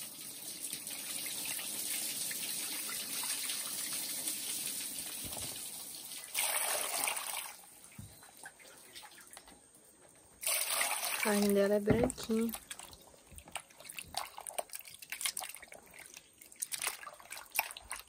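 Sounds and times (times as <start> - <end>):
water sloshing and trickling: 0.0 - 18.0
water splash: 10.4 - 18.0.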